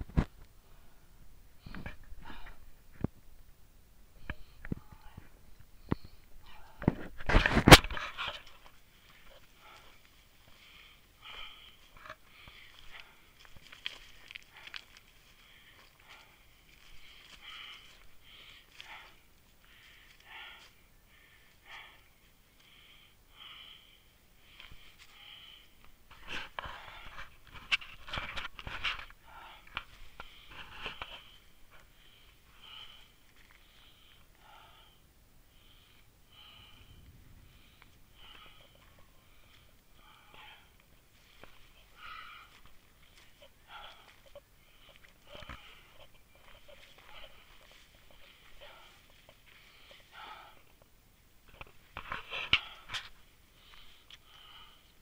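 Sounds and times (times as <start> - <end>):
grass and twigs crackling: 0.0 - 55.0
person breathing hard: 0.6 - 2.8, 7.9 - 55.0
footsteps through undergrowth: 7.0 - 20.8, 37.7 - 50.4.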